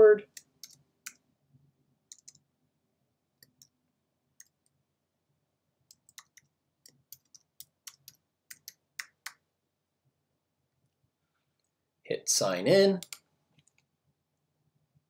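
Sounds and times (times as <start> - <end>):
keyboard typing: 0.3 - 1.2, 2.1 - 2.5, 4.4 - 4.8, 5.9 - 9.4, 13.0 - 13.9.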